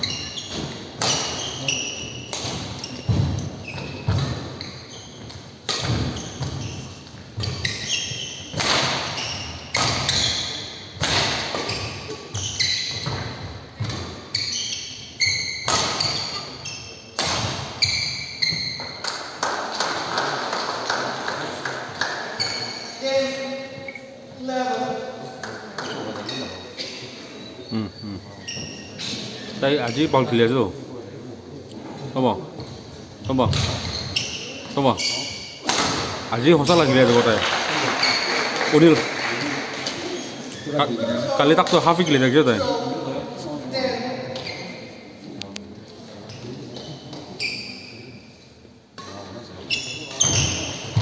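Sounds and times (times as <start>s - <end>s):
shoe squeaks on court floor: 0.0s - 19.1s, 22.4s - 24.2s, 25.8s - 30.2s, 32.6s - 35.8s, 38.0s - 38.6s, 40.0s - 41.1s, 43.7s - 45.1s, 46.2s - 48.4s, 49.0s - 51.0s.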